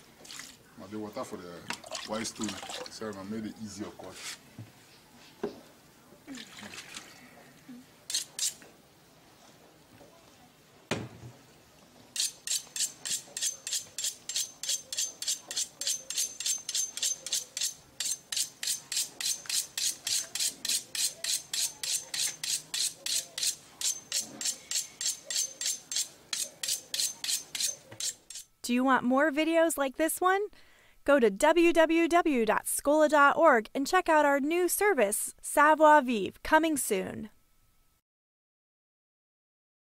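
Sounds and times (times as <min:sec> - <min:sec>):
knife scraping snail shells: 0:08.1 - 0:08.6, 0:12.2 - 0:28.5
single knock: 0:10.9 - 0:11.3.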